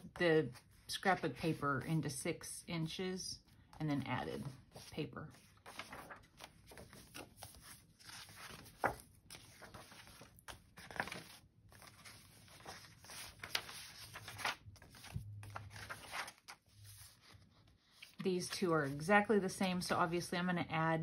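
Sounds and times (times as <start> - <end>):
paper pages rustling and flipping: 4.4 - 19.0.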